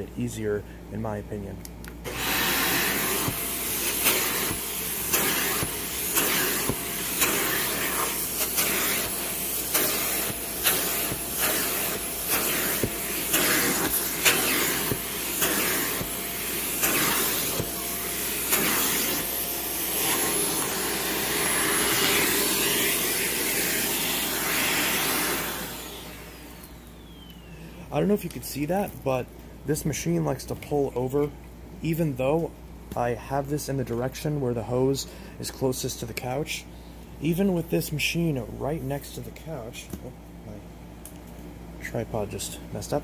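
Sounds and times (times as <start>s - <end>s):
vacuum cleaner running: 2.1s - 27.8s.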